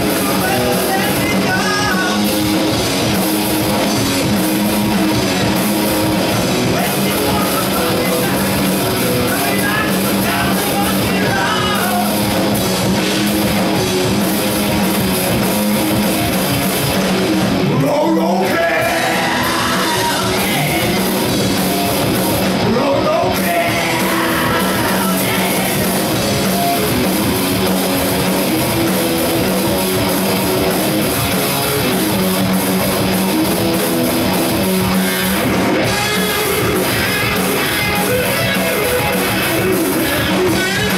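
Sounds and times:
drum kit: 0:00.0 - 0:40.9
electric guitars: 0:00.0 - 0:40.9.

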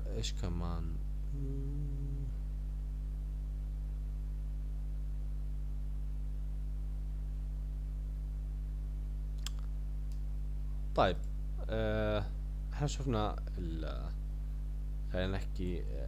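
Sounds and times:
electrical mains hum: 0:00.0 - 0:16.0
voiced hesitation: 0:01.3 - 0:02.4
click: 0:09.4 - 0:10.3.

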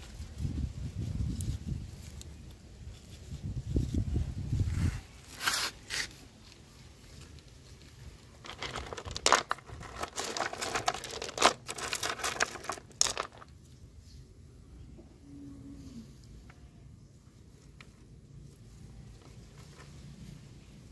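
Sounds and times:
stones clattering in a pot: 0:08.3 - 0:13.6.

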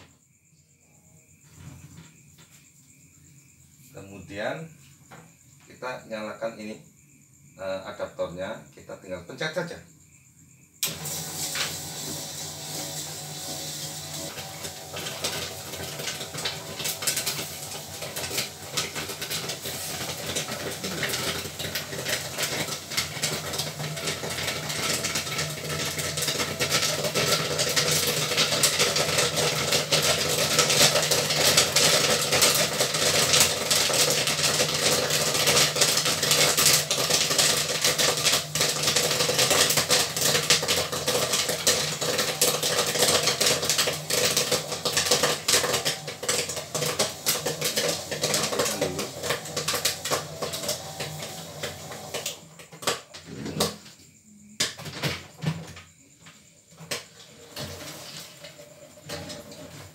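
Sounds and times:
machine hum: 0:10.8 - 0:52.4
popcorn popping: 0:10.8 - 0:55.8, 0:56.4 - 0:59.9.

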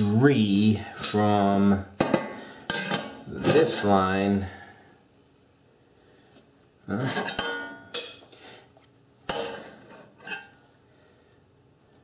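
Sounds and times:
metal tools clanking on metal pan: 0:02.0 - 0:03.2, 0:07.0 - 0:08.2, 0:09.3 - 0:10.5.

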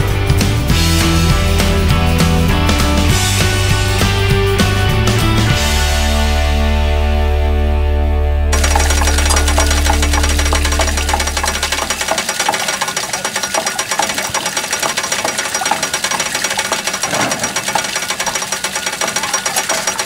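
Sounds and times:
background music: 0:00.0 - 0:12.4
water pouring splash: 0:08.6 - 0:20.0
wooden hammers clattering: 0:08.6 - 0:20.0.

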